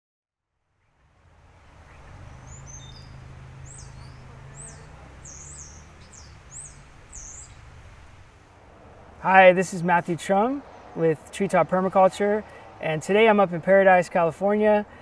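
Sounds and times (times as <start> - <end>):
small bird chirping: 1.7 - 7.9.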